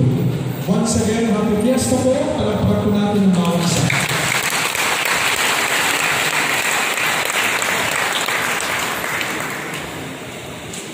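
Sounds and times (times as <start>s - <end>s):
congregation applauding: 3.4s - 10.3s.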